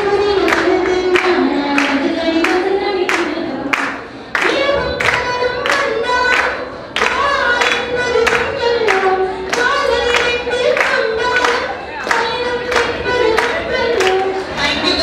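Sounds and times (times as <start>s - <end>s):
woman singing: 0.0s - 15.0s
clapped beat: 0.3s - 15.0s.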